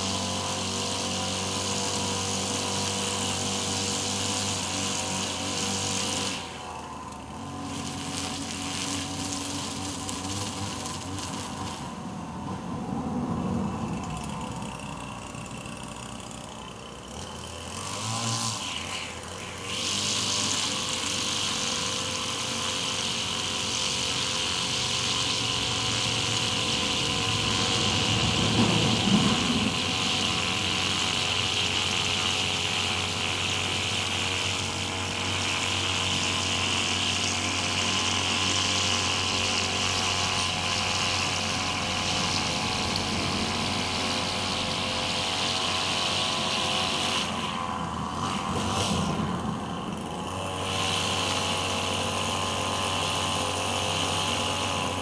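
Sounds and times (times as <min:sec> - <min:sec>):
string trimmer engine whining: 0:00.0 - 0:55.0
steady low hum: 0:03.9 - 0:17.6, 0:23.7 - 0:52.8.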